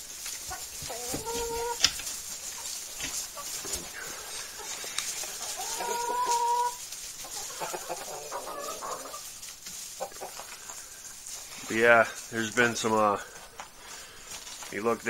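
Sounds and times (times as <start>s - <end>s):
chickens clucking: 0.0s - 15.0s
chicken long drawn-out call: 0.5s - 1.9s, 3.8s - 9.3s.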